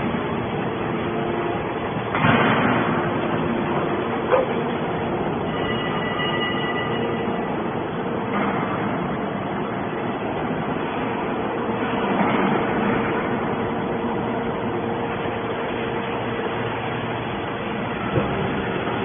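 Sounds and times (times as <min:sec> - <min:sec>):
hydraulic baler humming: 0:00.0 - 0:19.0.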